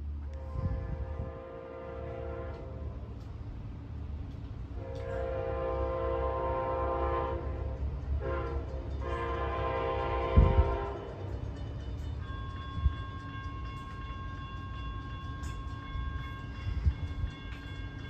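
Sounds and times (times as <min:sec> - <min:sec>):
train rumbling: 0:00.0 - 0:18.0
train horn blasts: 0:00.2 - 0:03.1, 0:04.8 - 0:11.4.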